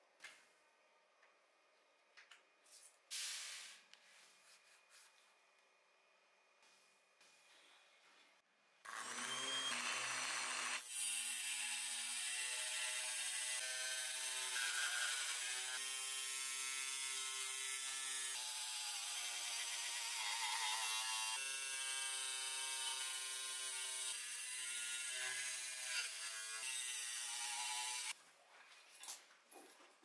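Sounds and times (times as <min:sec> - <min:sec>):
table saw motor whining: 0:08.9 - 0:10.8.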